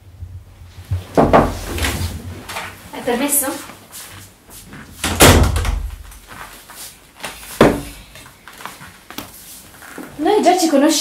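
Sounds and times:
door shutting with heavy thud: 5.0s - 6.0s.

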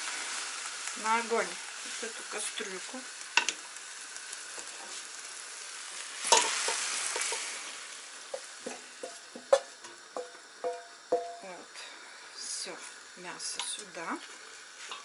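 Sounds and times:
meat sizzling in a frying pan: 0.0s - 15.0s
pan clinking and scraping on pot: 6.3s - 7.5s.

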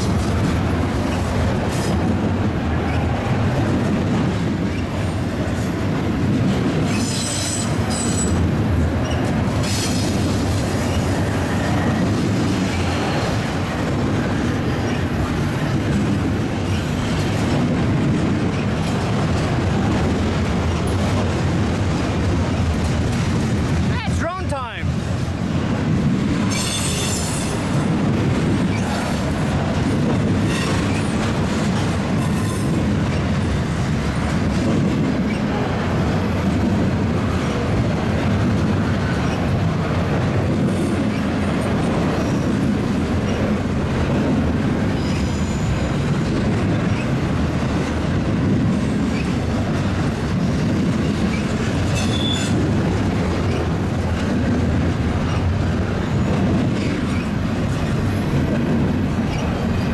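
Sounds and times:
train wheels rumbling on rail: 0.0s - 59.9s
high wheel squeals: 51.3s - 52.6s.

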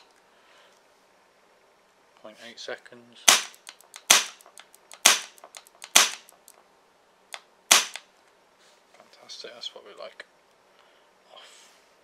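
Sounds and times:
faint mechanical clicks: 3.5s - 6.6s.

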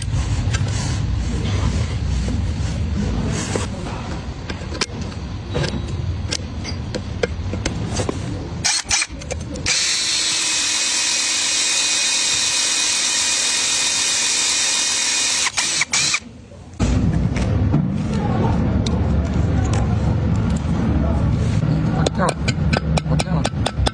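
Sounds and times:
electric drill boring into metal: 9.7s - 16.2s
wrench clicking and knocking: 22.0s - 23.9s.

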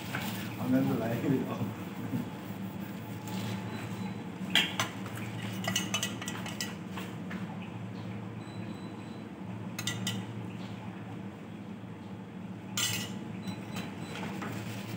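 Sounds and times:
steady low hum: 0.0s - 13.8s
metal spoon clinking on dishware: 9.8s - 10.2s, 12.8s - 13.2s.

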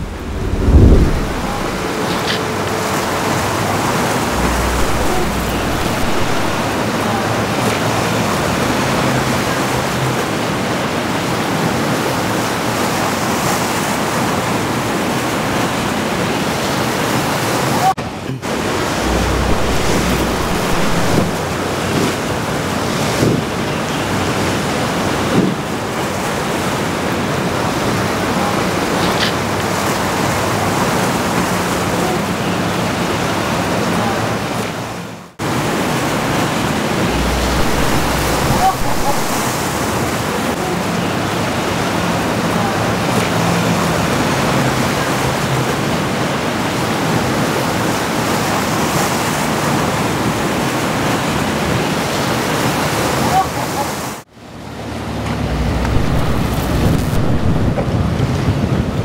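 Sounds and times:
wind on microphone: 0.0s - 7.0s, 18.5s - 22.4s, 36.4s - 40.5s, 54.8s - 59.0s
ocean waves and surf: 0.0s - 59.0s
wind: 0.0s - 59.0s.

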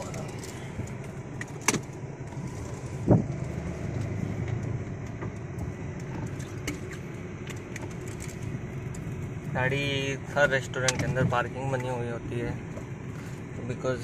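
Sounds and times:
car engine and road rumble: 0.0s - 14.0s.

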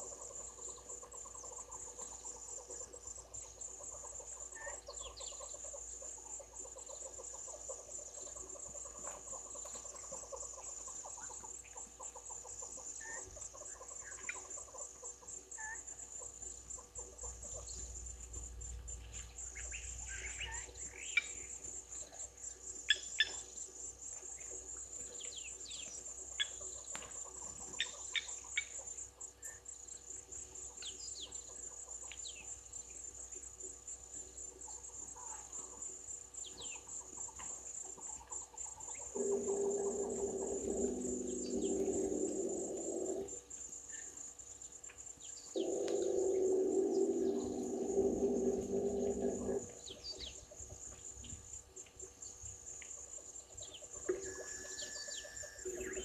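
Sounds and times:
crickets trilling: 0.0s - 56.0s
low hum with several tones: 39.1s - 43.4s, 45.6s - 49.9s.

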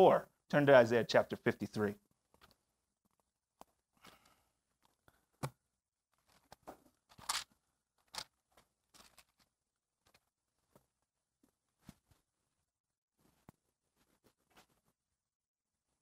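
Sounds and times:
pages rustling: 6.1s - 10.3s.

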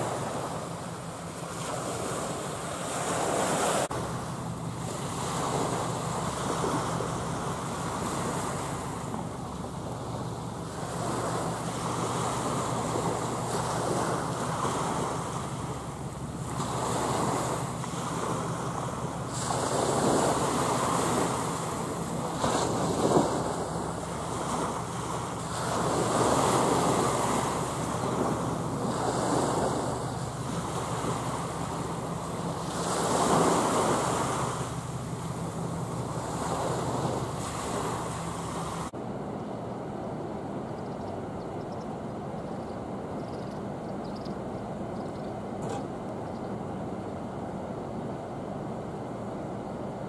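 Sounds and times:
waves washing against shore: 0.0s - 39.0s
steady low hum: 0.0s - 50.0s.

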